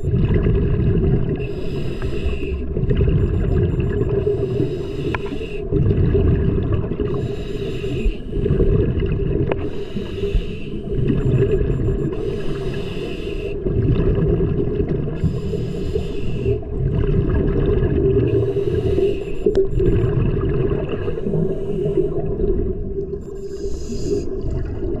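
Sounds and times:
exhaled bubbles: 0:00.0 - 0:07.4, 0:08.3 - 0:09.8, 0:10.8 - 0:12.7, 0:13.6 - 0:15.6, 0:16.2 - 0:25.0
low rumble of water: 0:00.0 - 0:25.0
diver breathing on regulator: 0:01.4 - 0:05.8, 0:07.0 - 0:08.7, 0:09.5 - 0:11.1, 0:12.0 - 0:13.7, 0:15.2 - 0:16.7, 0:18.2 - 0:20.0, 0:20.9 - 0:22.5, 0:23.3 - 0:24.4.

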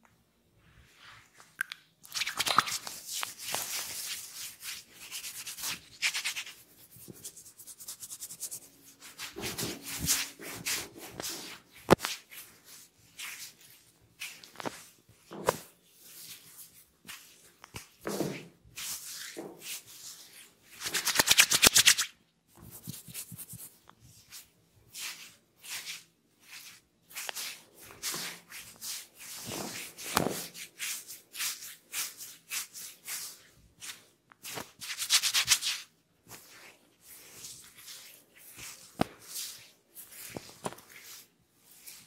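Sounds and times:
fingers rubbing hair and scalp: 0:02.4 - 0:14.9, 0:22.6 - 0:42.0
fast scratching on scalp: 0:03.5 - 0:10.9, 0:22.7 - 0:23.8.

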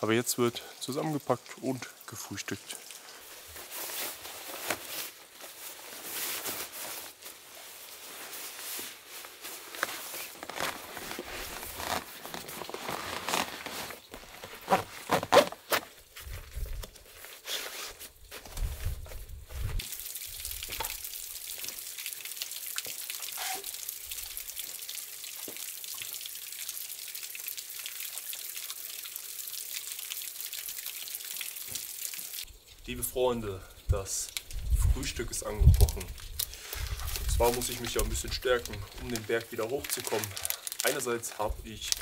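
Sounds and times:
rustles clicks and knocks of gear: 0:08.3 - 0:19.9, 0:34.1 - 0:42.0
steady hiss: 0:31.6 - 0:42.0.

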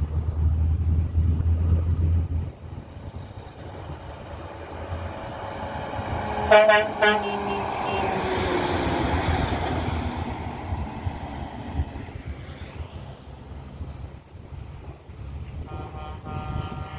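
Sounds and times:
truck engine and tyres passing: 0:00.0 - 0:16.9
short horn toots: 0:06.5 - 0:08.1, 0:15.7 - 0:16.9.

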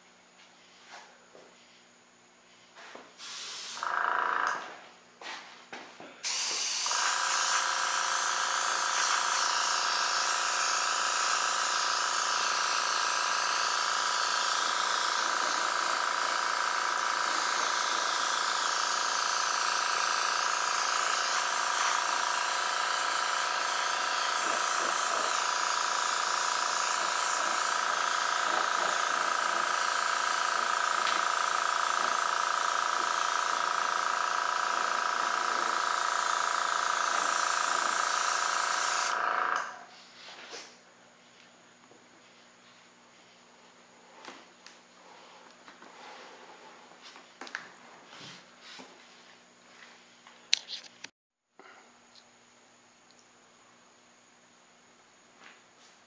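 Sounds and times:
airbrush hissing: 0:03.2 - 0:04.0, 0:06.2 - 0:39.7
compressor humming: 0:03.2 - 0:39.9.

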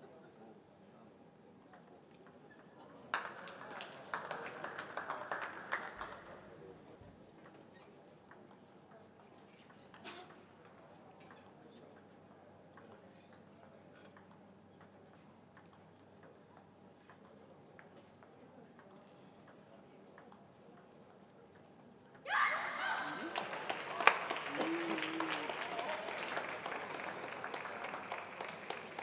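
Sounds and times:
crowd noise: 0:22.2 - 0:29.0.

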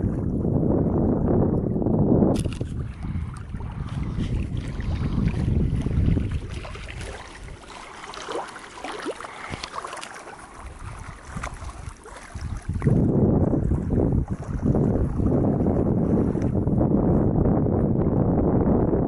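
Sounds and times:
small waves on lake: 0:00.0 - 0:19.0
wind buffeting microphone: 0:00.0 - 0:19.0
water clicks and ticks: 0:07.8 - 0:10.4.

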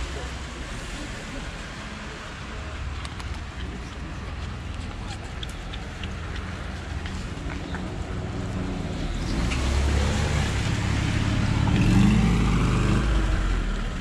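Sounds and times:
vehicle engine passing: 0:05.8 - 0:14.0.

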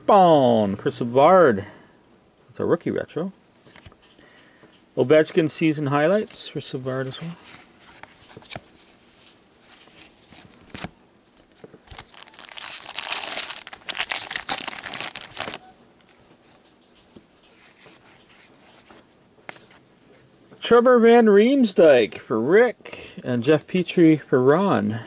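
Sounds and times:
card shuffling and handling: 0:06.2 - 0:20.3
wrapper tearing and crinkling: 0:11.8 - 0:15.6.

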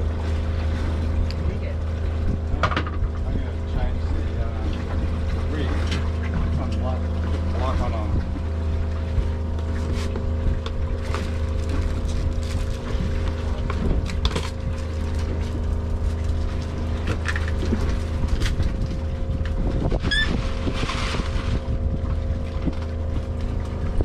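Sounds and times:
outboard motor idling: 0:00.0 - 0:24.0.

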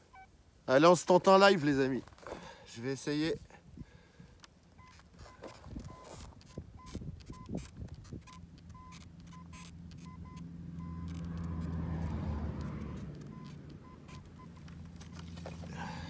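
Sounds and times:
metal detector beeps: 0:00.0 - 0:00.3, 0:04.7 - 0:11.3, 0:12.7 - 0:14.7
vehicle passing with low hum: 0:04.8 - 0:16.0.

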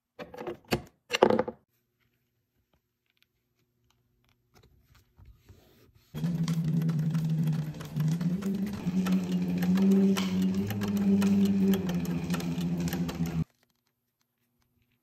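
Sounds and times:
sewing machine running: 0:06.2 - 0:13.4.

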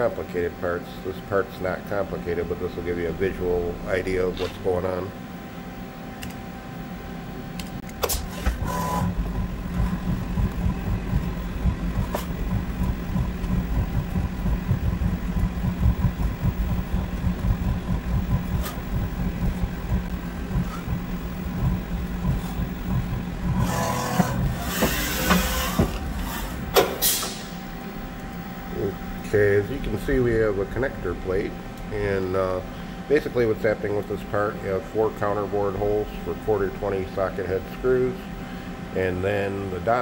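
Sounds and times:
milling machine hum: 0:00.0 - 0:40.0
machine hissing: 0:08.0 - 0:27.8.

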